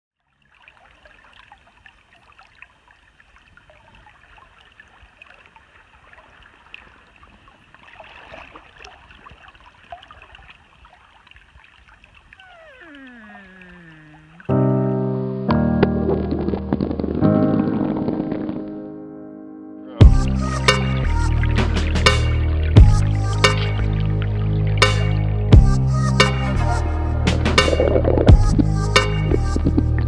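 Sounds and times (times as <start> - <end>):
small splashes and drips: 0.2 - 14.6
river water flowing: 0.2 - 18.9, 20.0 - 30.0
gliding pitched tone: 12.4 - 14.9.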